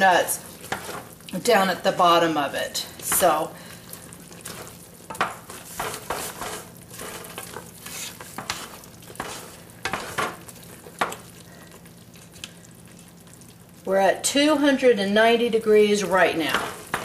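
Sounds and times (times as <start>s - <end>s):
syrup bubbling and sizzling: 0.0s - 14.8s
wooden spoon scraping pot: 0.4s - 1.6s, 4.3s - 11.3s, 16.3s - 17.0s.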